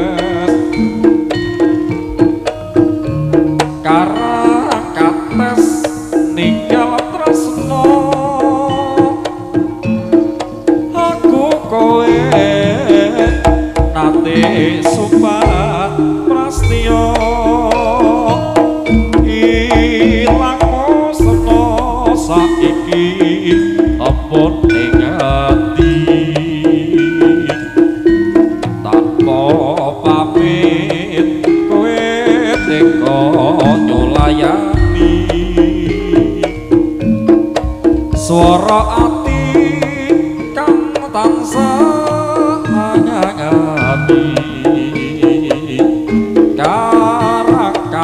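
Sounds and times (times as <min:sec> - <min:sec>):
gamelan music: 0:00.0 - 0:48.0
hand drums beating: 0:00.0 - 0:48.0
wavering melody line: 0:00.0 - 0:48.0
deep low drum hit: 0:19.0 - 0:23.1.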